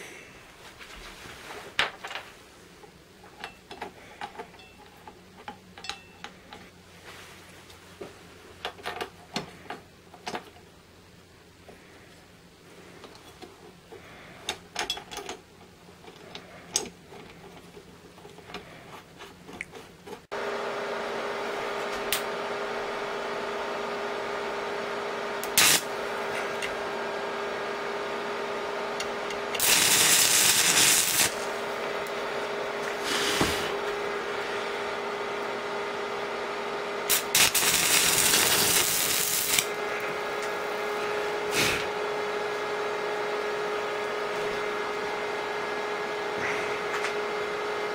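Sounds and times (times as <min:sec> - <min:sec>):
arc welder hum: 0:20.3 - 0:47.9
welding arc bursts: 0:25.4 - 0:26.3, 0:29.5 - 0:31.8, 0:37.1 - 0:40.0.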